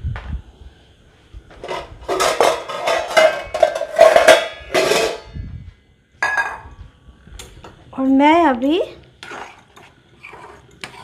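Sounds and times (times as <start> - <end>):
metal spoon scraping a pan: 1.6 - 5.3, 9.2 - 11.0.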